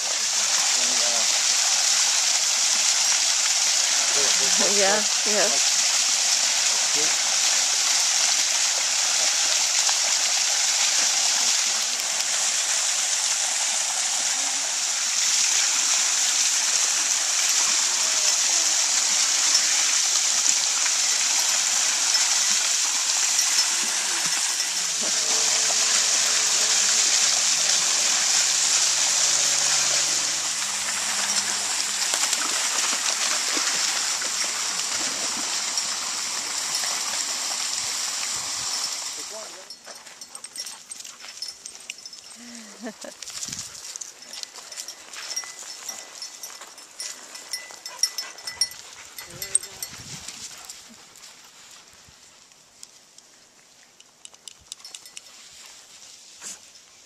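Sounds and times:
water gushing from a pipe: 0.0 - 39.8
dogs wading through water: 0.0 - 52.8.

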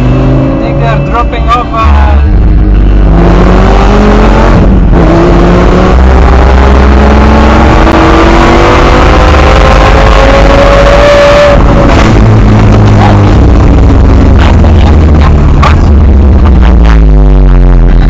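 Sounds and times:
car engine accelerating hard: 0.0 - 18.0.

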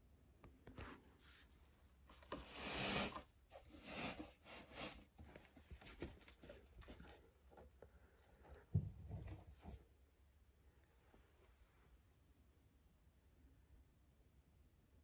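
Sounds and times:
rustling and scraping: 0.7 - 9.9.

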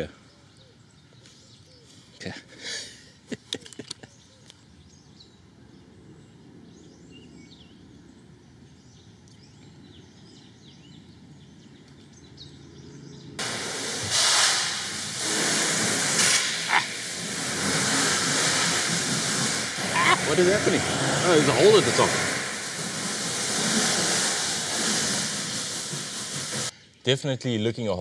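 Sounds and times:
hose spray hissing into tank: 13.4 - 26.7.

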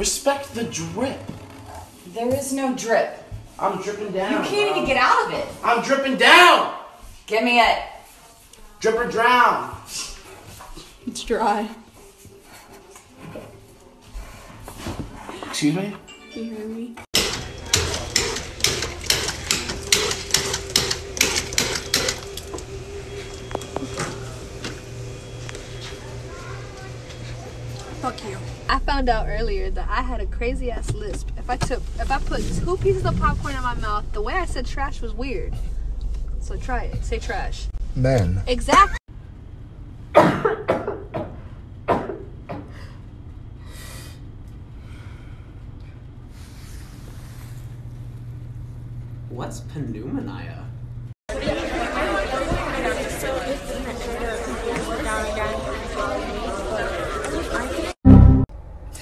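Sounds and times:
steady machine hum: 17.2 - 51.2
woman coughing hard: 40.2 - 41.0.

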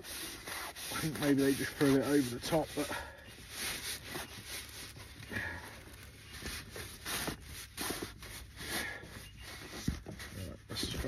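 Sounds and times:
foam pipe lagging rustling and scraping: 0.0 - 11.0.

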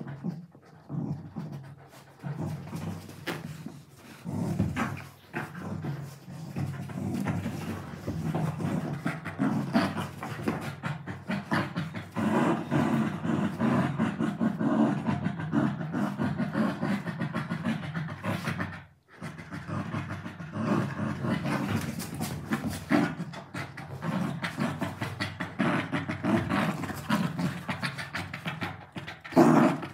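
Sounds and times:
dogs mouthing pillow fabric: 0.0 - 13.6
dogs growling: 0.0 - 29.9.

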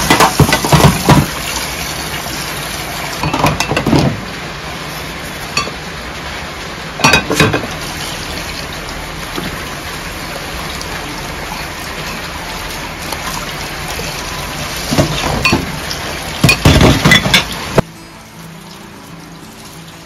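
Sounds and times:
tap water splashing into sink: 0.0 - 1.7, 14.9 - 17.4
glassware and crockery clinking: 7.0 - 7.7, 14.9 - 15.8, 16.4 - 17.6.

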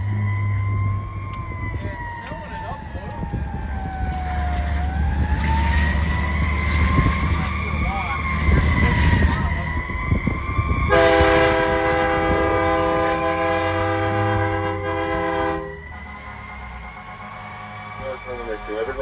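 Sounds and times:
engine rumble: 0.0 - 19.0
fire truck siren wailing: 0.0 - 19.0
air horn blast: 10.9 - 17.9.

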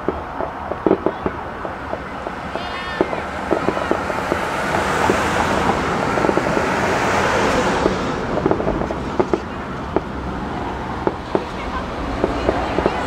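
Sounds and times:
fireworks popping and crackling: 0.0 - 13.0
fireworks rushing noise: 0.0 - 13.0.

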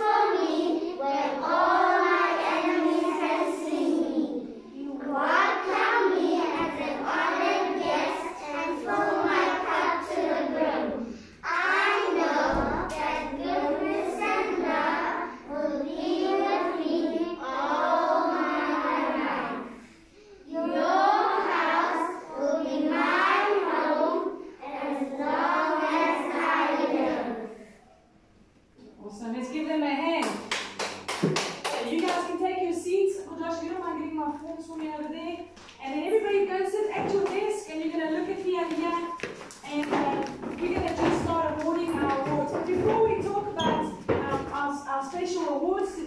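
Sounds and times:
children chanting in unison: 0.0 - 27.8.

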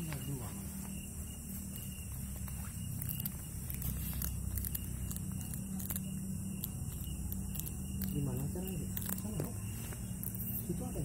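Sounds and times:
steady low hum: 0.0 - 11.0
cat chewing food: 2.1 - 10.6.

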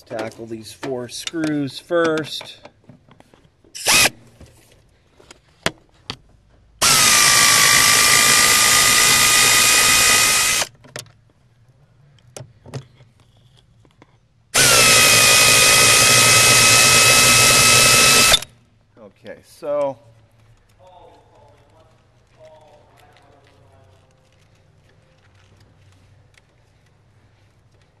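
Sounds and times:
power drill whining: 3.8 - 4.2, 6.8 - 10.7, 14.6 - 18.5.

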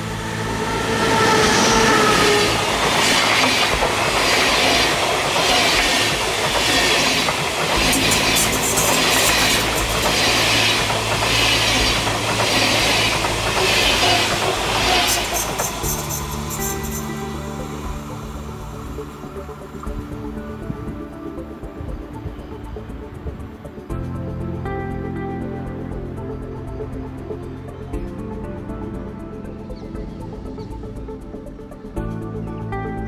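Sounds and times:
train wheels clickety-clack: 0.8 - 18.0.

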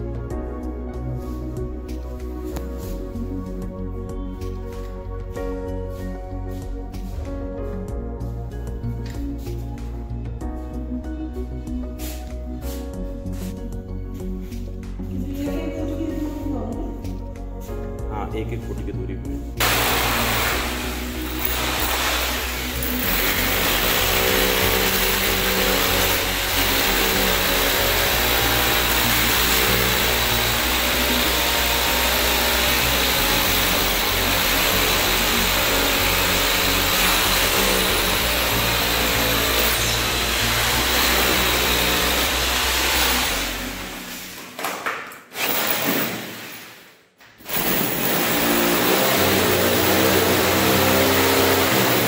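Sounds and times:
electric drill running under load: 19.6 - 44.2, 45.4 - 46.7, 47.4 - 52.0.

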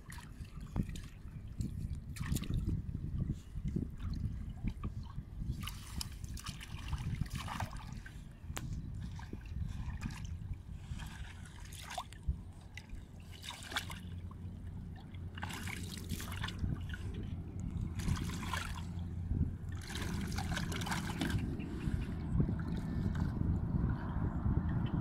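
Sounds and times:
shallow water splashing: 0.0 - 23.4
low engine drone: 7.9 - 25.0.

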